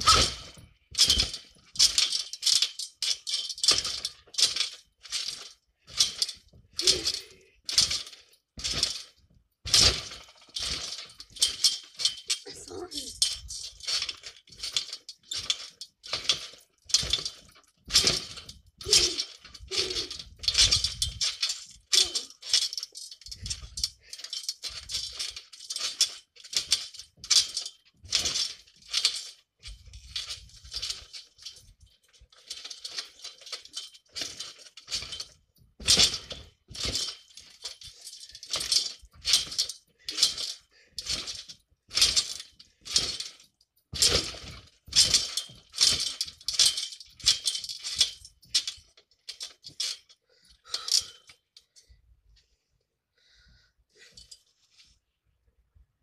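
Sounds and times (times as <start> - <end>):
trampoline mat thud: 0.0 - 2.3, 7.8 - 11.8, 13.8 - 21.8, 34.2 - 37.5, 42.0 - 48.0
trampoline springs clinking: 0.0 - 51.9.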